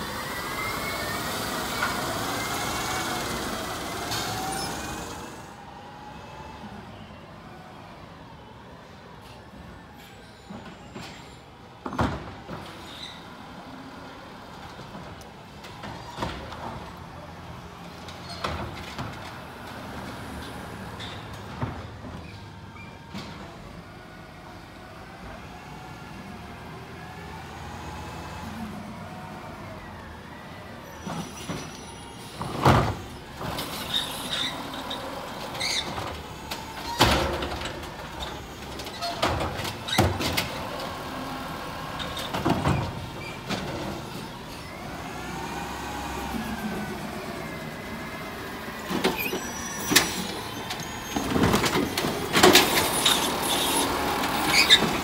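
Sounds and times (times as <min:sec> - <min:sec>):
garbage truck engine: 0:00.0 - 0:55.0
bins banging and clunking: 0:31.0 - 0:44.9, 0:48.6 - 0:55.0.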